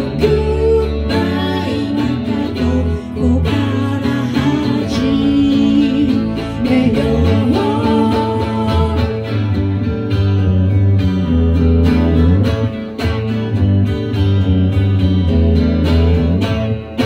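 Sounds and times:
woman singing: 0.0 - 9.8
electric bass: 0.0 - 17.0
electric guitar: 0.0 - 17.0.

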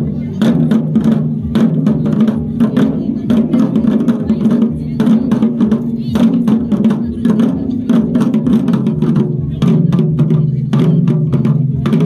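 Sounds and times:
fast dense drumming: 0.0 - 12.0.

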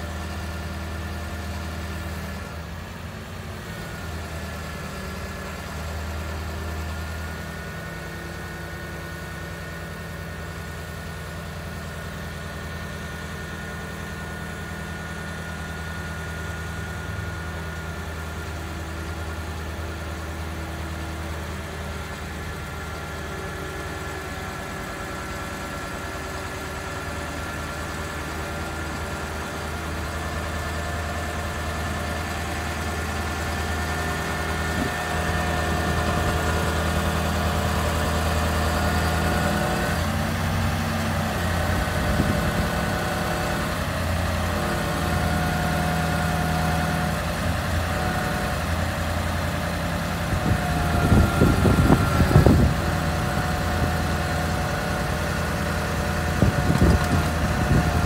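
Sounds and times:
truck engine idling: 0.0 - 58.0
hydraulic whine: 14.5 - 58.0.

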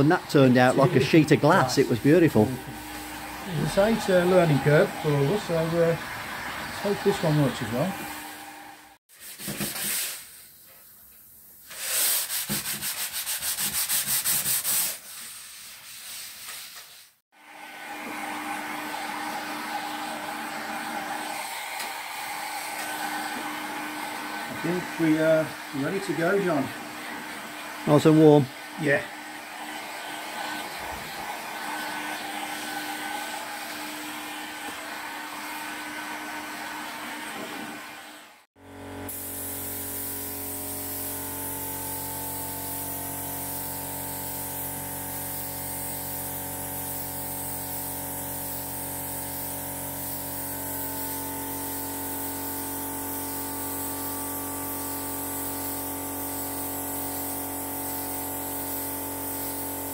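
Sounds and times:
spray gun hissing: 0.0 - 8.2, 22.5 - 28.9, 39.1 - 59.9
hot air gun blowing: 39.1 - 59.9.

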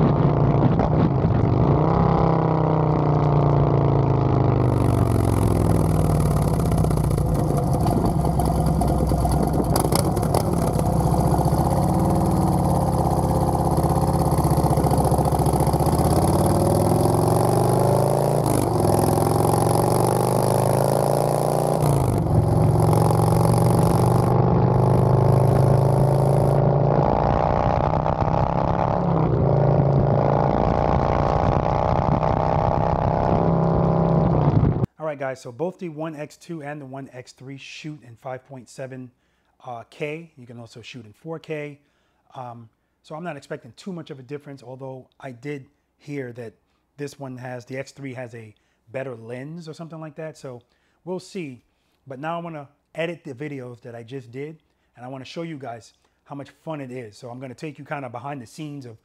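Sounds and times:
motorcycle engine revving: 0.0 - 34.9.

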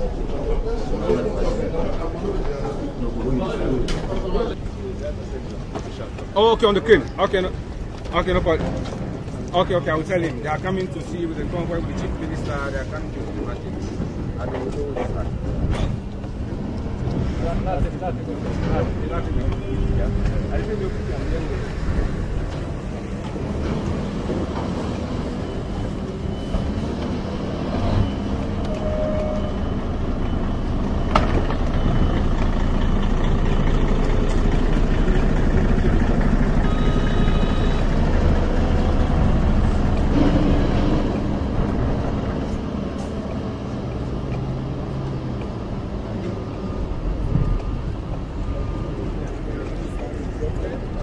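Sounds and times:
vehicle engines rumbling: 0.0 - 51.0
brief beep-like tone: 25.3 - 33.0, 36.6 - 40.8.

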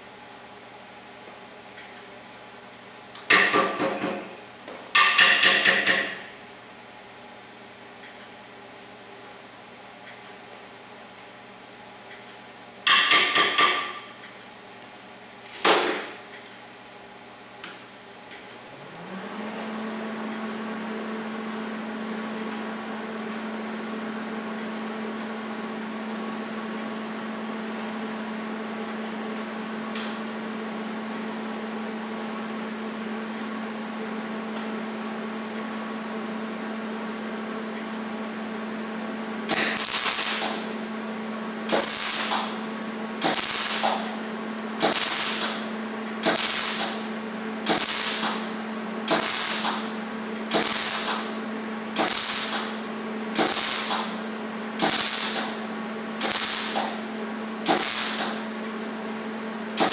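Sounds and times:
welder humming: 17.2 - 31.8, 38.5 - 59.9
short bursts of welding arc: 39.5 - 40.7, 41.7 - 42.6, 43.2 - 44.2, 44.8 - 48.5, 49.1 - 49.9, 50.5 - 51.4, 52.0 - 52.8, 53.4 - 54.2, 54.8 - 55.6, 56.2 - 58.5.

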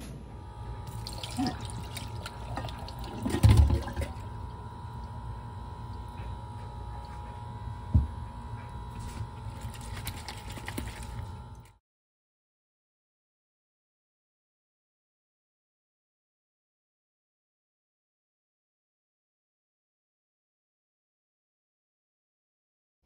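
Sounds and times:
steady hum: 0.0 - 11.8
liquid splashing into colander: 0.9 - 4.5, 9.0 - 11.7.

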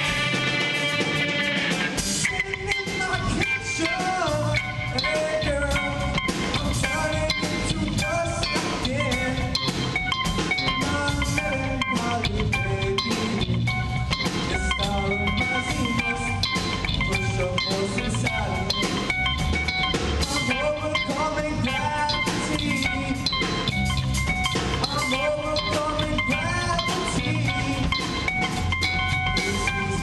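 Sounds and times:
drum kit: 0.0 - 30.0
electric bass guitar: 0.0 - 30.0
electric guitar bending notes: 0.0 - 30.0.

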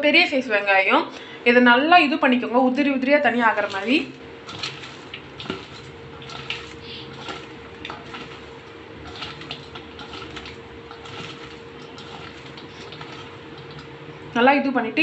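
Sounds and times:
onion pieces rustling and crackling: 3.4 - 14.0.

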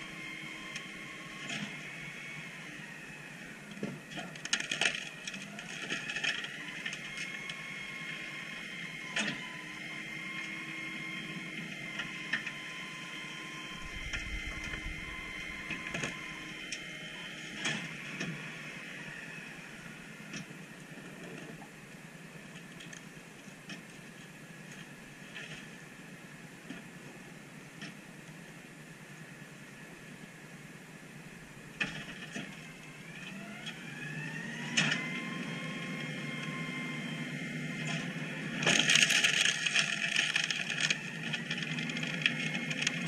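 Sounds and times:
hydraulic packer whine: 0.0 - 21.2, 31.3 - 43.0.

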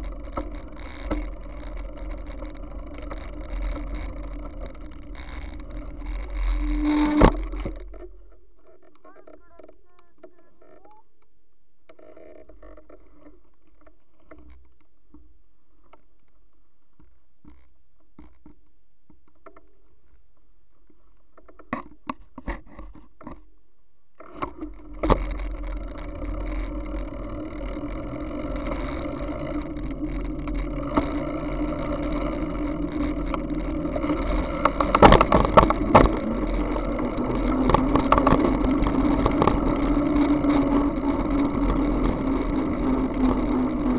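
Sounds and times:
tyre and road noise: 0.0 - 11.1, 24.2 - 43.9
clicks and knocks: 24.2 - 43.9.

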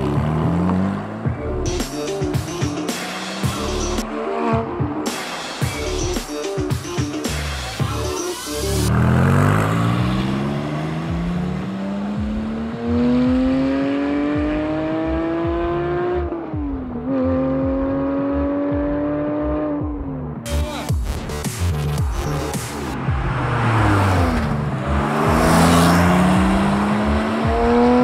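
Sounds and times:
car engine accelerating hard: 0.0 - 1.6, 3.0 - 5.4, 8.6 - 20.4, 22.2 - 28.0.

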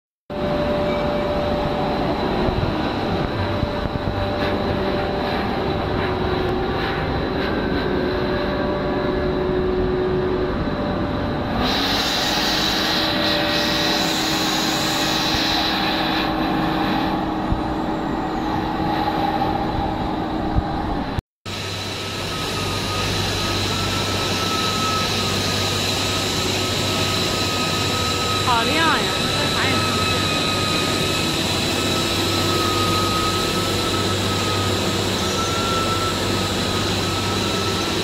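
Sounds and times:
machine motors humming: 0.4 - 38.0
high hiss: 11.6 - 17.6.

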